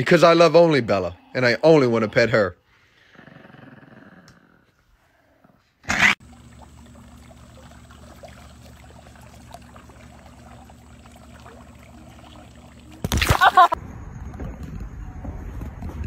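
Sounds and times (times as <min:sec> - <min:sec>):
water trickling and dripping: 0:06.2 - 0:13.2
paws splashing water: 0:06.2 - 0:13.3
low steady hum: 0:06.2 - 0:16.0.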